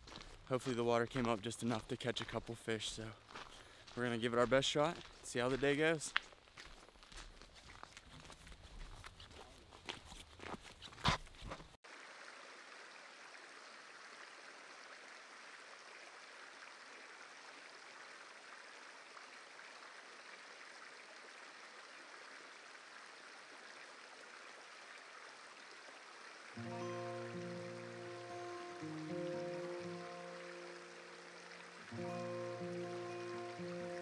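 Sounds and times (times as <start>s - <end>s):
footsteps on gravel: 0.0s - 11.7s
stream spilling over rocks: 11.8s - 34.0s.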